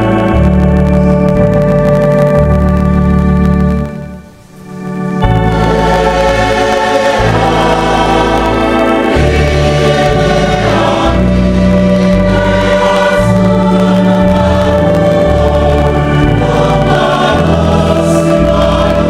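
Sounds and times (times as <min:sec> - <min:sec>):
organ bass chords: 0:00.0 - 0:19.0
congregation singing a hymn: 0:04.7 - 0:19.0.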